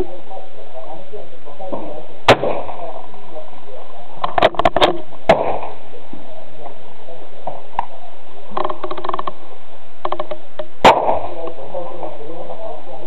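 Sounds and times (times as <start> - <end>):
rifle shot echoing: 1.7 - 3.3, 5.2 - 5.9, 10.8 - 11.7.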